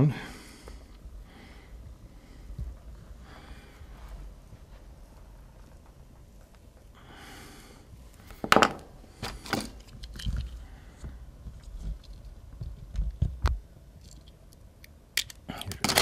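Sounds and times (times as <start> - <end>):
pliers and crimper clicking: 14.0 - 16.0.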